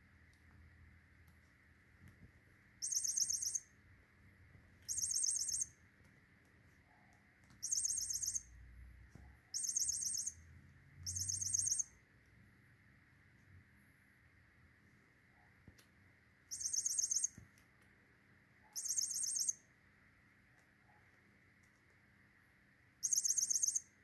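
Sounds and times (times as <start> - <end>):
high bird-like chirping trills: 2.8 - 3.8, 4.8 - 5.8, 7.6 - 8.6, 9.5 - 12.0, 16.5 - 17.4, 18.7 - 19.7, 23.0 - 24.0.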